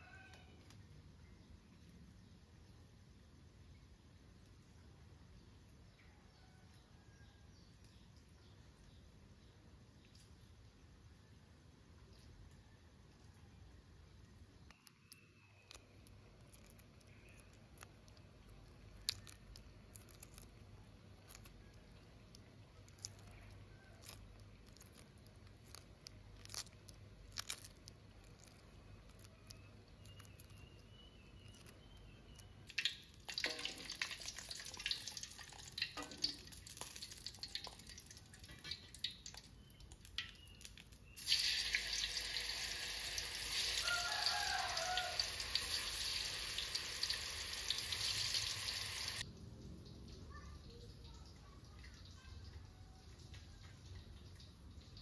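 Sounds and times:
food deep-frying in oil: 0:14.4 - 0:55.0
eggshell peeling clicks: 0:14.7 - 0:33.4, 0:35.8 - 0:41.1.

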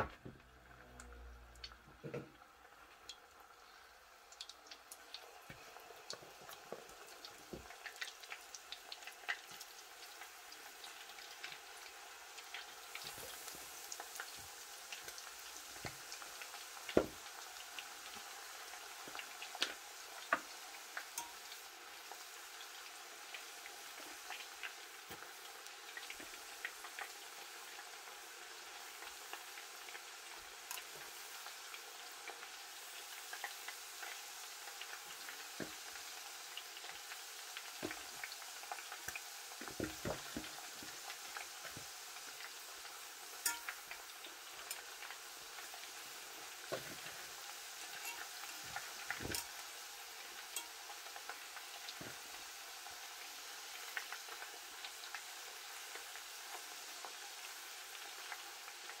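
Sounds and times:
slices deep-frying in hot oil: 0:00.0 - 0:59.0
metal fork clicking against pot: 0:43.4 - 0:43.8.

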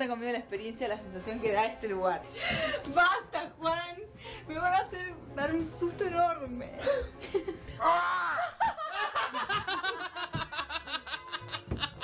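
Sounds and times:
person laughing hard: 0:07.2 - 0:12.0.

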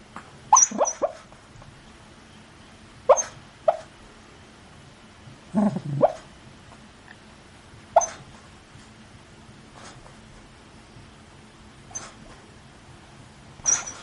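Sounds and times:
dog yipping and whimpering: 0:00.5 - 0:01.3, 0:03.1 - 0:03.9, 0:08.0 - 0:08.2, 0:11.9 - 0:12.2, 0:13.6 - 0:14.0
dog low grumble: 0:05.5 - 0:06.2.

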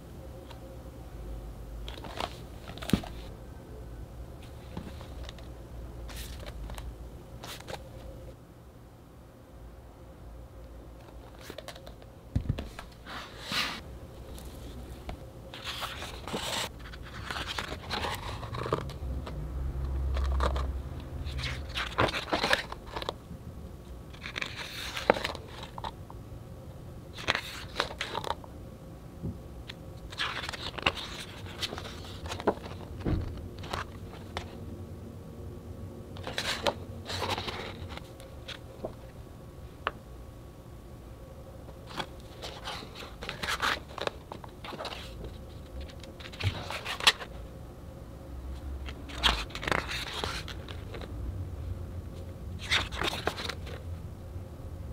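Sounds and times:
heavy book pages turning: 0:01.9 - 0:03.3, 0:06.1 - 0:07.8, 0:12.5 - 0:23.2, 0:24.1 - 0:26.0, 0:27.2 - 0:28.4, 0:30.1 - 0:34.6, 0:36.2 - 0:39.0, 0:41.8 - 0:47.3, 0:48.8 - 0:51.1, 0:52.6 - 0:53.8.

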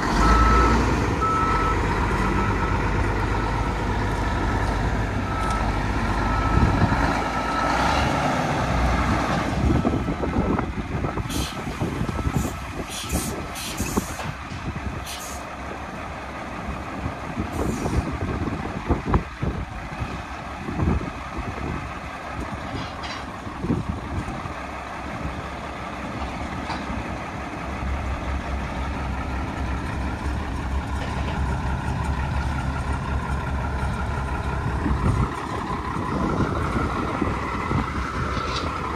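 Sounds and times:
truck engine idling: 0:00.0 - 0:38.9
air brake hisses: 0:11.3 - 0:11.7, 0:12.4 - 0:14.3, 0:15.0 - 0:15.5.

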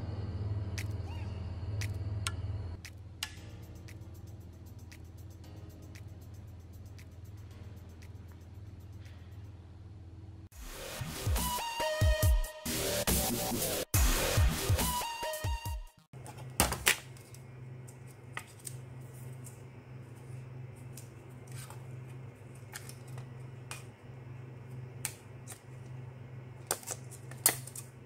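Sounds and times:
steady low hum: 0:00.0 - 0:10.5, 0:16.2 - 0:28.0.

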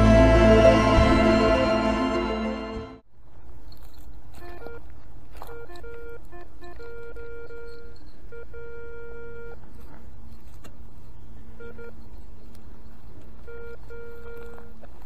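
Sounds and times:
metal detector beeping: 0:04.4 - 0:09.9, 0:11.6 - 0:14.8.

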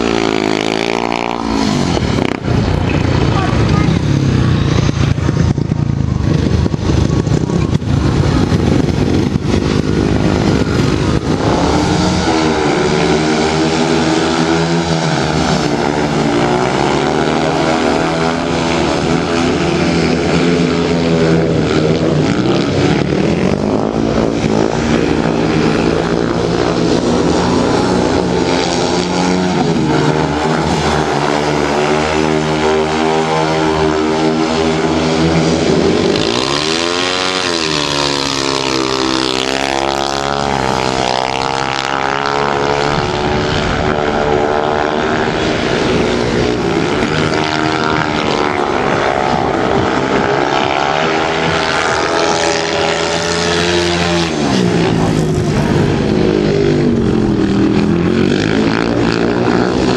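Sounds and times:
motorcycle engines revving: 0:00.0 - 0:59.9.

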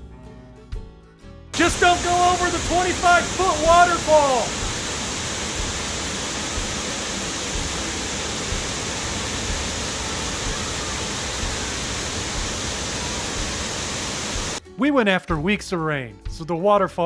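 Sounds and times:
waterfall roaring: 0:01.6 - 0:14.6.

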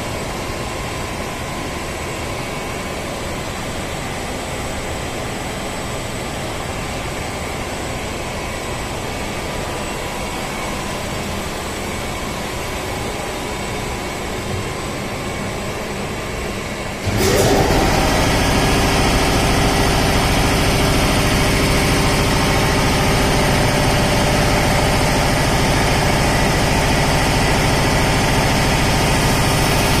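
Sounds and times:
machinery running: 0:17.0 - 0:30.0
motor starting with rising whine: 0:17.0 - 0:30.0.

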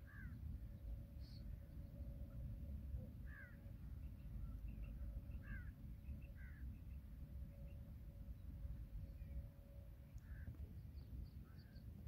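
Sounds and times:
low steady rumble: 0:00.0 - 0:12.0
faint bird chirps: 0:03.3 - 0:12.0.

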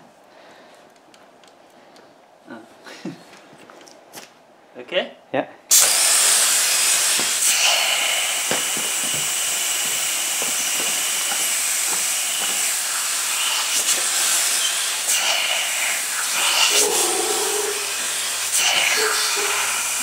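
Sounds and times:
compressed air hissing: 0:05.7 - 0:20.0.

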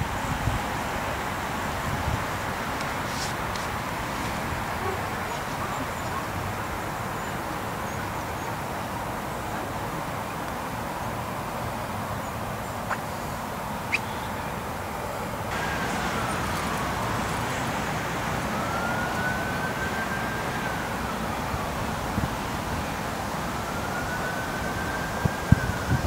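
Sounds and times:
outdoor noise: 0:00.0 - 0:26.0
distant siren wailing: 0:13.8 - 0:26.0.

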